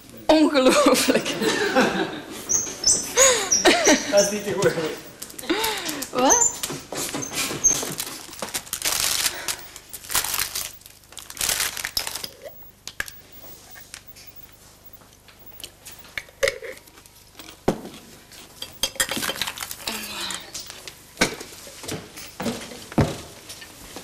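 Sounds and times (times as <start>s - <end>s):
wrapping crinkling and rustling: 4.4s - 13.2s, 18.2s - 20.9s.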